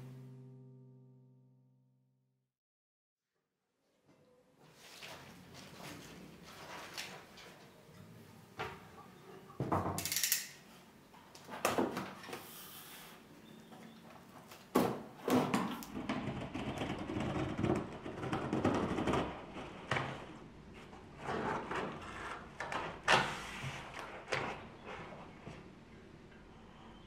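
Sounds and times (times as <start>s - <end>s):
cardboard scrapes and rustles: 19.0s - 25.6s.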